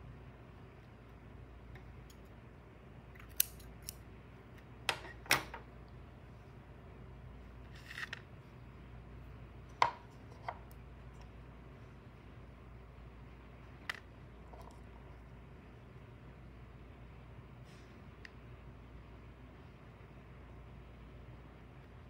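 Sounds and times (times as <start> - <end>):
scissors snipping yarn: 3.2 - 4.0.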